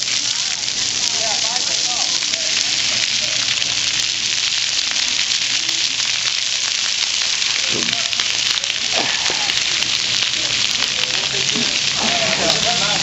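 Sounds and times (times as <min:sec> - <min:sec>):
hiss of falling water: 0:00.0 - 0:13.0
faint voices calling out: 0:07.4 - 0:13.0.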